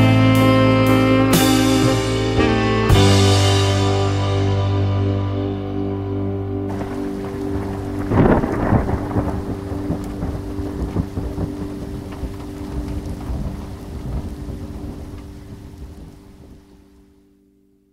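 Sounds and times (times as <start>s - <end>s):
low held notes: 0.0s - 17.1s
thunderclap: 6.7s - 16.7s
rolling thunder rumble: 6.7s - 16.9s
rain: 6.7s - 17.4s.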